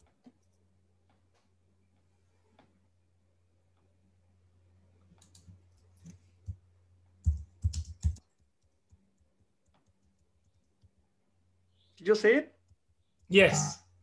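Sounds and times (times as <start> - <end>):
faint electrical hum: 0.0 - 14.0
computer mouse clicks: 5.0 - 6.2.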